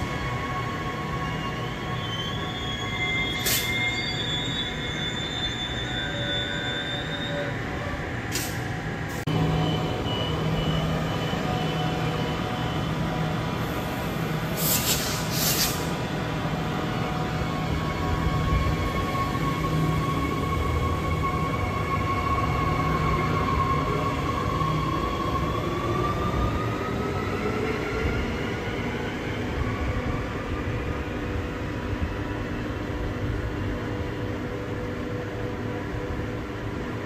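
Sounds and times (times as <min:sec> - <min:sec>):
train wheels squealing on rails: 0:00.0 - 0:31.8
short hisses: 0:14.6 - 0:15.9.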